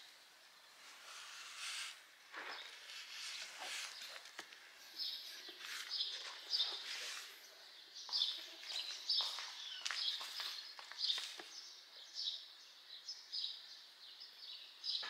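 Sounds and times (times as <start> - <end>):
small birds chirping: 0.0 - 15.0
soft rustling: 0.7 - 7.6, 8.2 - 11.7.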